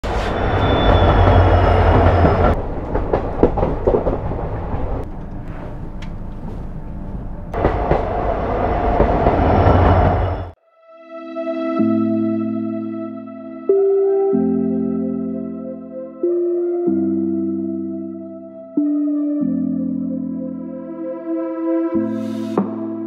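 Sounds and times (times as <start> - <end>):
train wheels clattering on track: 0.0 - 6.2, 7.6 - 10.6
scattered knocks: 1.1 - 4.9.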